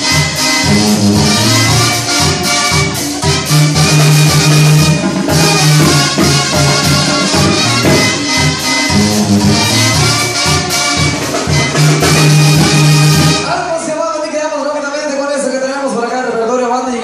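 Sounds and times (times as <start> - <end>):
low bass line: 0.0 - 13.4
brass trumpets and trombones: 0.0 - 13.6
drum beat: 0.0 - 13.8.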